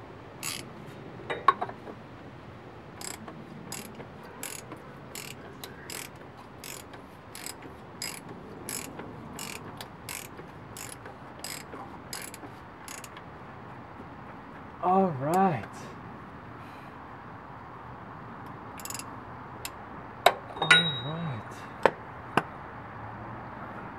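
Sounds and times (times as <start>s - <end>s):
socket ratchet clicking: 0.4s - 0.7s, 3.0s - 13.2s, 18.8s - 19.8s.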